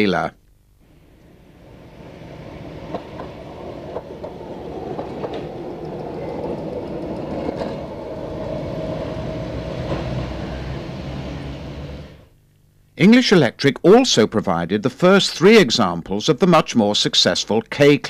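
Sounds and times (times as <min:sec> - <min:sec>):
steady hum: 0:00.4 - 0:13.6
tram rumbling past: 0:00.9 - 0:12.3
wheels clicking over rail joints: 0:01.2 - 0:10.4.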